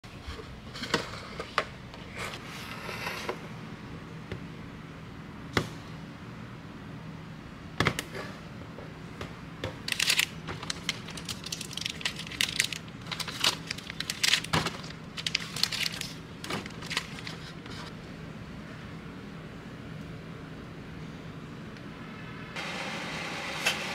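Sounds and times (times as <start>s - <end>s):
plastic wrappers crinkling: 9.9s - 17.9s.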